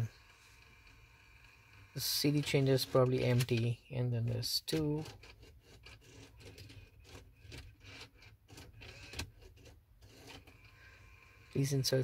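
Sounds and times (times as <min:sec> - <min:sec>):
cd changer whirring and clicking: 0:00.0 - 0:03.7.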